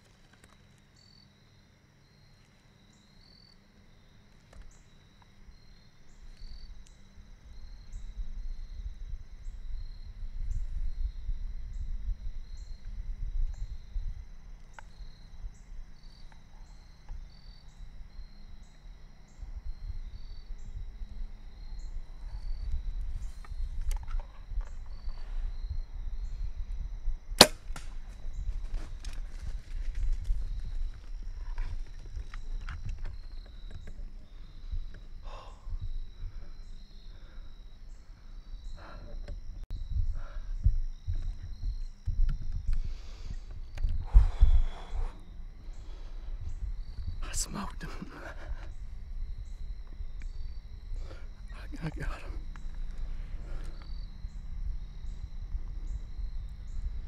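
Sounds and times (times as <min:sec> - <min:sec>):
insects chirping: 0:00.0 - 0:57.0
bow shot crack: 0:27.4 - 0:28.3.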